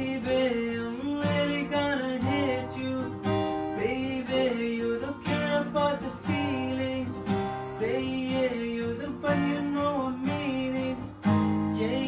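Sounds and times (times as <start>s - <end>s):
man singing wordless runs: 0.0s - 11.2s
acoustic guitar strumming: 0.0s - 12.0s.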